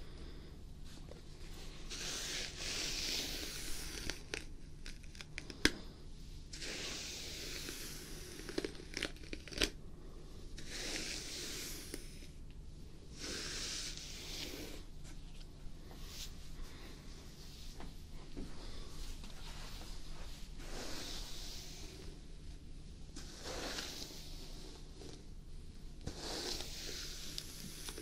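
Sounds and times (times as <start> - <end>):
brush drawn through hair: 1.5 - 4.3, 6.6 - 8.5, 10.6 - 12.3, 13.1 - 14.9, 19.0 - 22.2, 23.1 - 25.3, 26.0 - 28.0.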